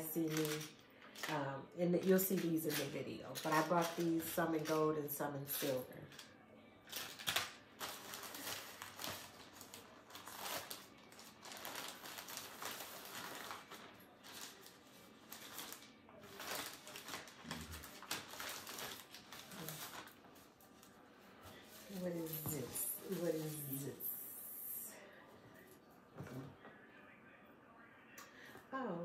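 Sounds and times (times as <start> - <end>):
packaging rustling and crinkling: 6.9 - 24.0.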